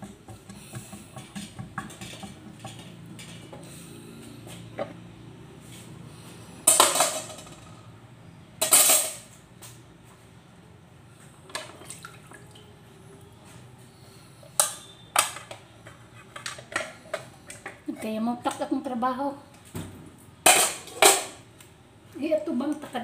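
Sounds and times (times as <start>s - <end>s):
pots dishes and utensils clattering: 0.0s - 3.8s, 6.6s - 7.6s, 8.6s - 9.3s, 14.6s - 17.9s, 20.4s - 21.4s.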